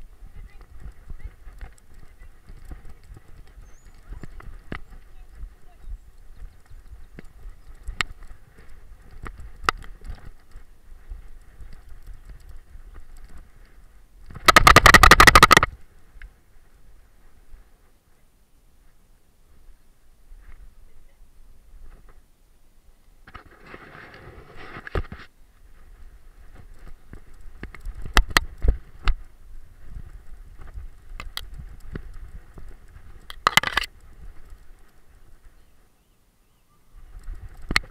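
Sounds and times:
rustle through long grass: 0.0s - 37.9s
camera rattling in mount: 14.3s - 15.7s, 33.2s - 34.0s
camera handling knocks and bumps: 33.3s - 33.9s.

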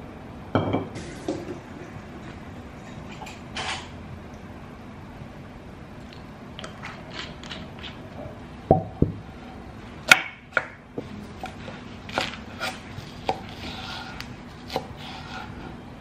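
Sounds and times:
knife chopping on cutting board: 12.1s - 15.6s.

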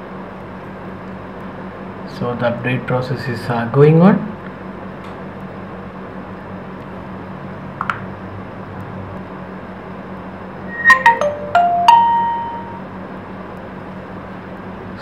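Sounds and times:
phone startup chime: 10.7s - 12.9s.

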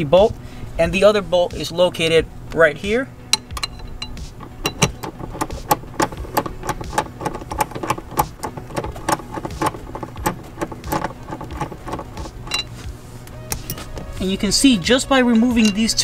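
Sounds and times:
ratchet wrench clicking: 3.4s - 12.8s.

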